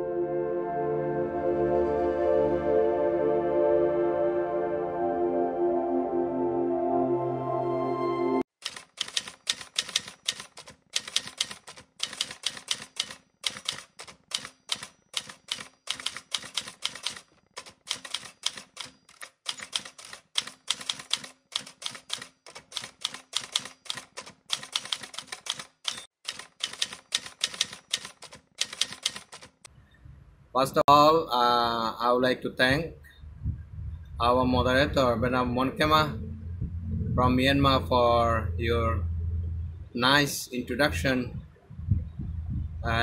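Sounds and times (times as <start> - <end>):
typewriter key clacks: 8.6 - 29.6.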